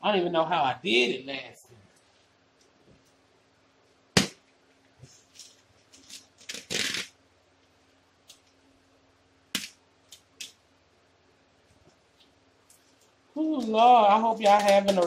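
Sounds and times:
plastic tearing: 0:05.4 - 0:07.2, 0:14.4 - 0:15.0
plastic wrapping crinkling: 0:12.1 - 0:15.0.

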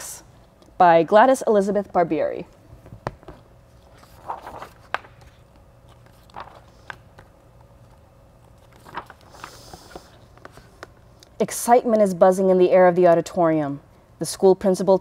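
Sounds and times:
paper rustling: 0:03.1 - 0:11.0.

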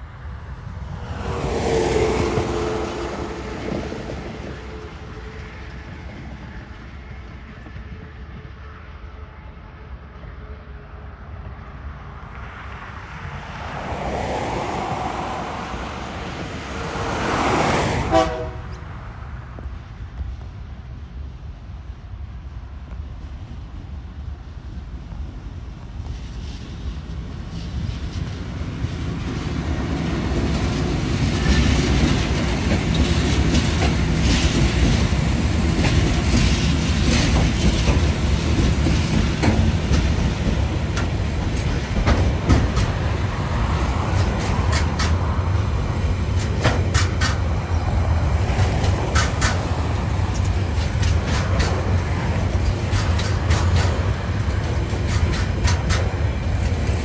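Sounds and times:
diesel locomotive engines rumbling: 0:00.0 - 0:57.0
train wheels clickety-clack: 0:01.5 - 0:08.5, 0:25.1 - 0:57.0
sharp clicks of wagons: 0:44.2 - 0:45.2, 0:46.4 - 0:47.9, 0:48.5 - 0:57.0.

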